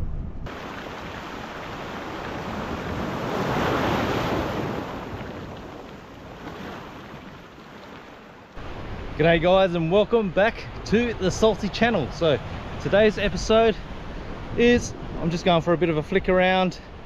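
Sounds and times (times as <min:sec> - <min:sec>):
ocean wave washing in: 0:00.5 - 0:09.2.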